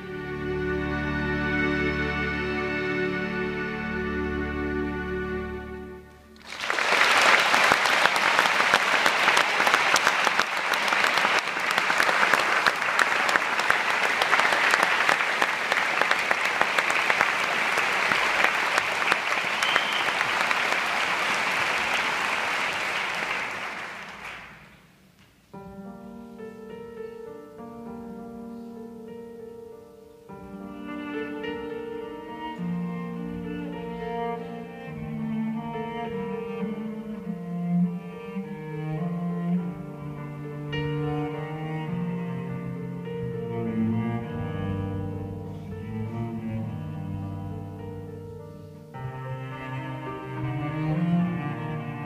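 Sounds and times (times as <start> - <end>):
audience applauding: 6.4 - 24.8.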